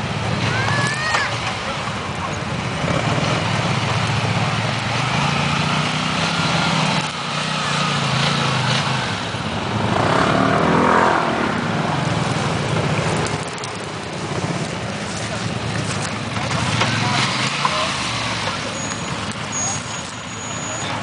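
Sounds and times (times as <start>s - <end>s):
quad engine revving under load: 2.6s - 14.6s, 15.8s - 20.0s.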